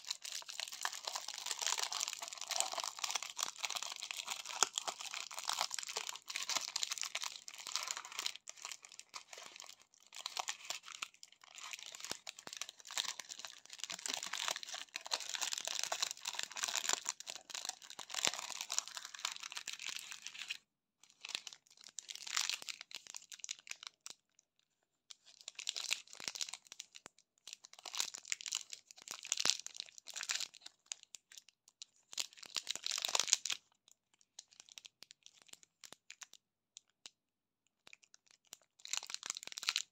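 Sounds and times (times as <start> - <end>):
plastic wrapper tearing: 0.0 - 20.6, 38.2 - 39.9
candy wrappers crinkling: 0.0 - 24.2, 25.2 - 36.9, 37.8 - 39.9.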